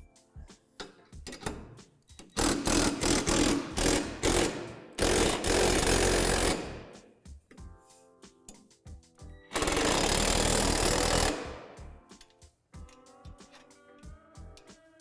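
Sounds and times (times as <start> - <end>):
impact driver hammering: 2.4 - 7.0, 9.5 - 11.7.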